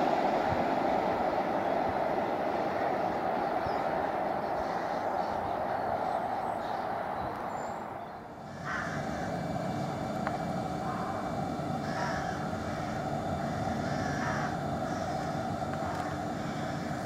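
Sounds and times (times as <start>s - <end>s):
train rumbling: 0.0s - 17.0s
bird calling: 3.3s - 10.1s, 10.7s - 17.0s.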